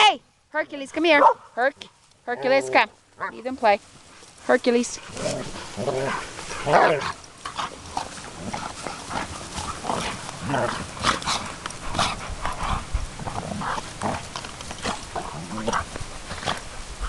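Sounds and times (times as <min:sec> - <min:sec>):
dogs play-wrestling: 0:04.0 - 0:16.8.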